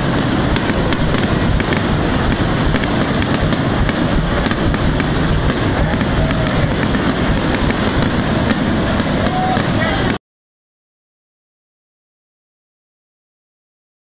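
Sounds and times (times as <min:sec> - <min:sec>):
fireworks bursting: 0:00.0 - 0:10.2.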